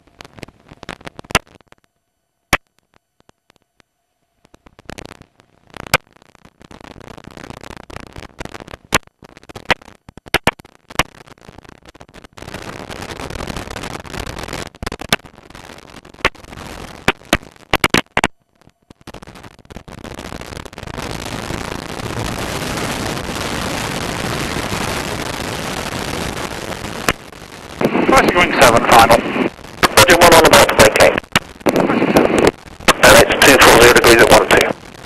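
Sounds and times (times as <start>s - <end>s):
crackling clicks: 0.0s - 35.0s
wind and aircraft engine noise: 27.8s - 34.7s.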